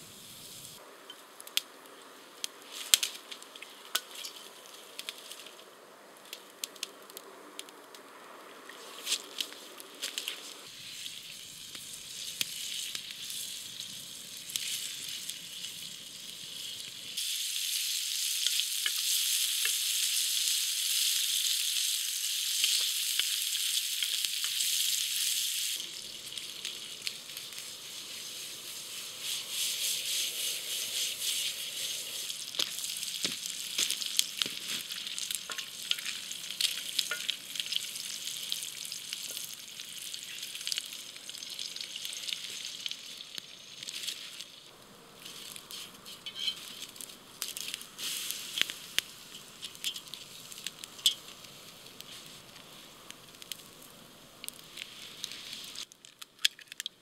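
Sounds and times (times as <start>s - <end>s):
campfire crackles: 0.0s - 57.0s
bacon sizzling in a pan: 9.0s - 44.6s, 45.2s - 55.9s
wooden spatula scraping: 45.2s - 47.0s.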